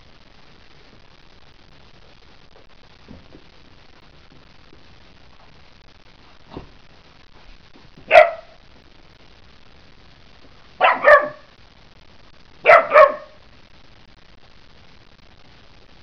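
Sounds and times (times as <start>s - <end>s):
puppy barking: 8.1s - 8.6s, 10.8s - 11.5s, 12.6s - 13.4s.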